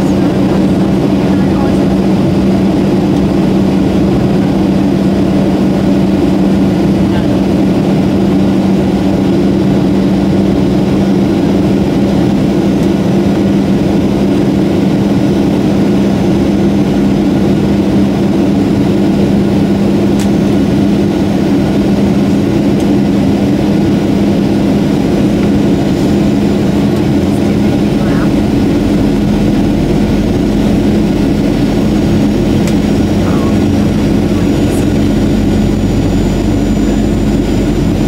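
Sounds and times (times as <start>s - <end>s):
airliner engine drone: 0.0s - 38.0s.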